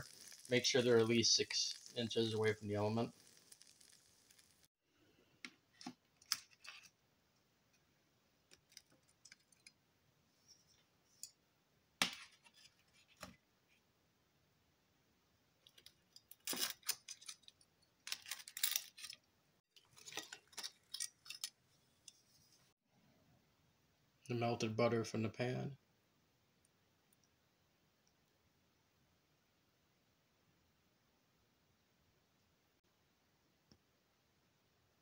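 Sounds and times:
metal tongs clicking and scraping: 20.0s - 22.2s.

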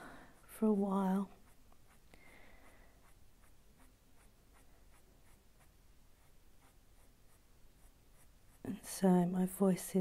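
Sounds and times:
coloured pencil scratching on paper: 0.1s - 10.0s.

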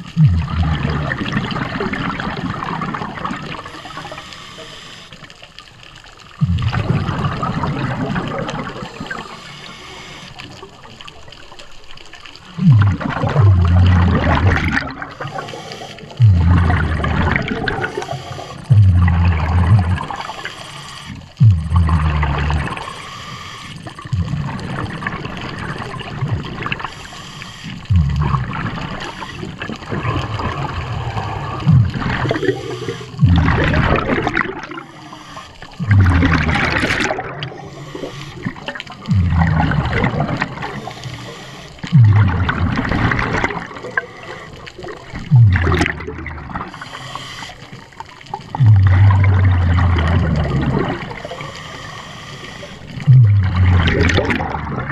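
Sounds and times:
underwater exhaled bubbles gurgling: 0.0s - 54.9s
regulator hissing inhalation: 3.6s - 5.3s, 9.0s - 10.4s, 15.2s - 16.2s, 17.7s - 21.4s, 22.6s - 23.9s, 26.8s - 28.2s, 32.3s - 33.3s, 34.7s - 35.8s, 37.5s - 38.6s, 40.7s - 41.9s, 46.7s - 48.0s, 51.4s - 53.0s.

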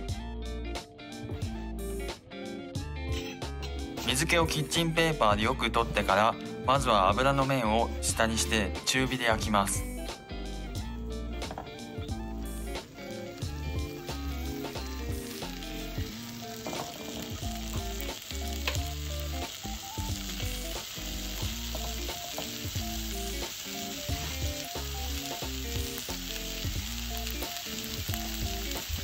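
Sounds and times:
background music: 0.0s - 29.0s
meat sizzling in a frying pan: 11.5s - 29.0s.

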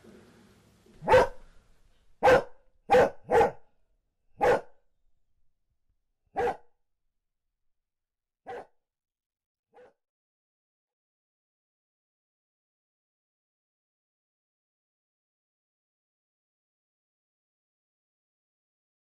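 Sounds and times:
dog barking: 1.0s - 1.5s, 2.2s - 3.7s, 4.4s - 4.8s, 6.3s - 6.7s, 8.4s - 8.8s, 9.8s - 10.0s.

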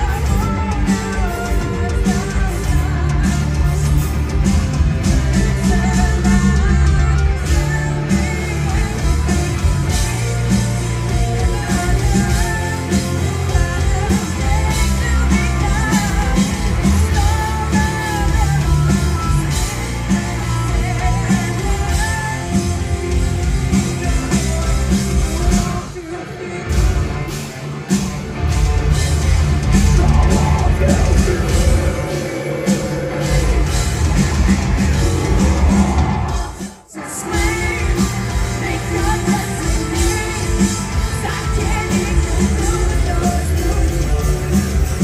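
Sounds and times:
woman singing: 0.0s - 26.8s, 36.9s - 45.0s
bass guitar: 0.0s - 45.0s
drums: 0.0s - 45.0s
electric guitar: 0.0s - 45.0s.

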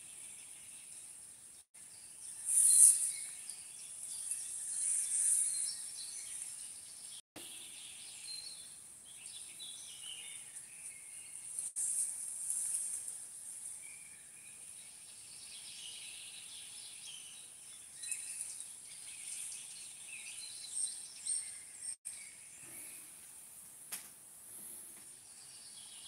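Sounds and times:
high-pitched chirping: 2.3s - 6.5s.

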